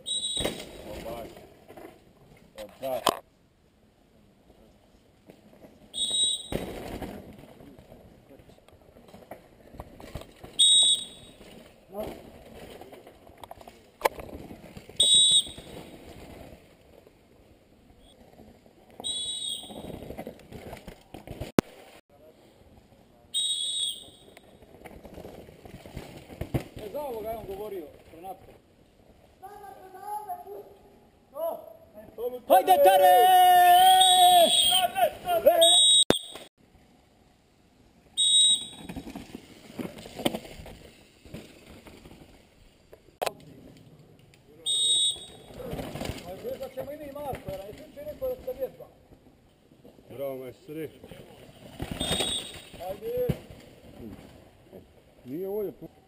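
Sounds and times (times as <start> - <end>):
shrill whistle blasts: 0.0 - 0.7, 5.9 - 6.7, 10.6 - 11.4, 15.0 - 15.8, 19.0 - 20.0, 23.3 - 24.4, 33.7 - 36.5, 38.2 - 39.0, 44.6 - 45.6, 51.9 - 52.8
mountain bike rustling on dirt: 4.9 - 22.7, 24.4 - 29.9, 37.8 - 44.3, 45.1 - 55.7.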